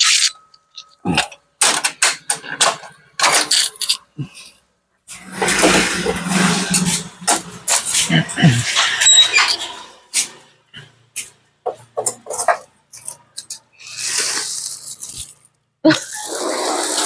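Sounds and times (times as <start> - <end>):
machine parts clattering: 1.6 - 4.2, 5.1 - 10.3.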